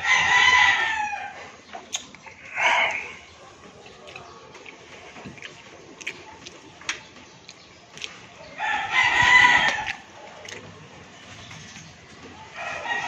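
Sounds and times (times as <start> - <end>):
rooster crowing: 0.0 - 1.4, 8.6 - 10.0, 12.5 - 13.0.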